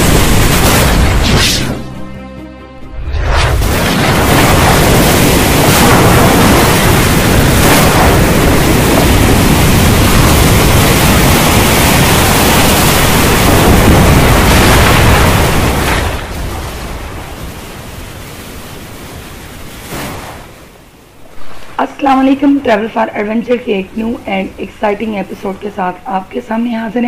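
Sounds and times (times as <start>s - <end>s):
heavy rain: 0.0s - 1.5s, 3.2s - 27.0s
deep rumble: 2.9s - 16.8s.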